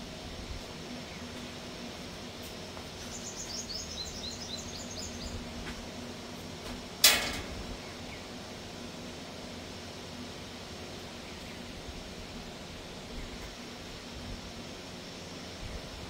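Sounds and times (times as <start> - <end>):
steady low hum: 0.0 - 16.0
bird chirping: 3.1 - 5.4
metallic clank: 7.0 - 7.6.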